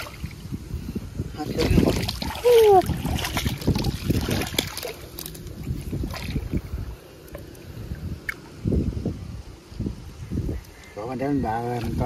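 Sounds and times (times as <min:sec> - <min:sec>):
water sloshing and splashing: 0:00.0 - 0:00.6, 0:01.4 - 0:08.6, 0:11.5 - 0:12.0
wind on microphone: 0:00.0 - 0:12.0.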